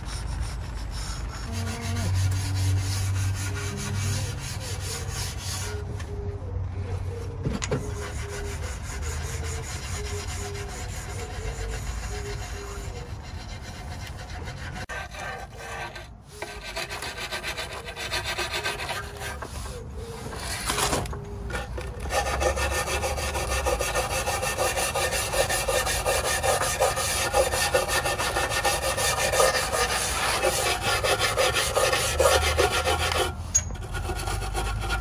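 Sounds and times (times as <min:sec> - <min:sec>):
rag rubbing on engine: 0:00.0 - 0:05.9, 0:07.8 - 0:35.0
metal tool scraping: 0:07.8 - 0:35.0.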